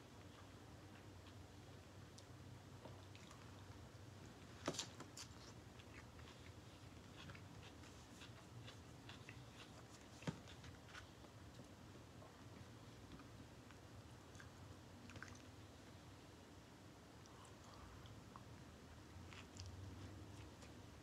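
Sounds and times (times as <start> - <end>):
person chewing: 5.2 - 11.1.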